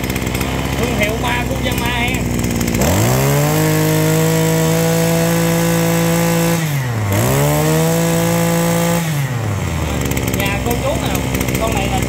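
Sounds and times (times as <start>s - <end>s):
brush-cutter engine revving: 0.0s - 12.0s.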